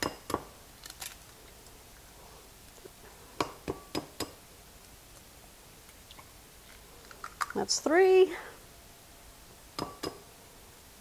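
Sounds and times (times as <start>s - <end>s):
egg tapped on ceramic bowl: 9.8s - 10.2s.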